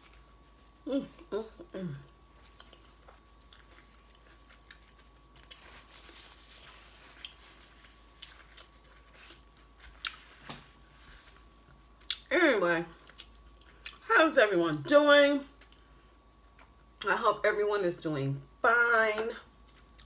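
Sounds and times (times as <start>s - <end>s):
faint chewing: 1.9s - 10.4s.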